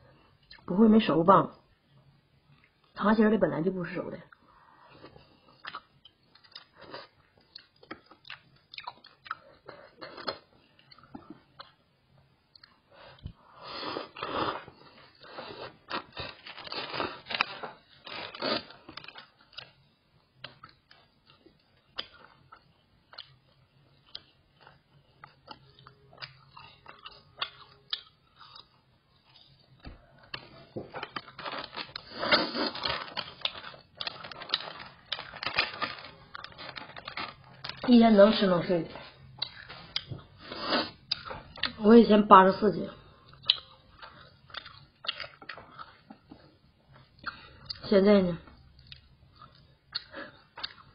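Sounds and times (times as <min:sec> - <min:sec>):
plastic snack packet crinkling: 0:15.8 - 0:19.8, 0:30.3 - 0:38.6.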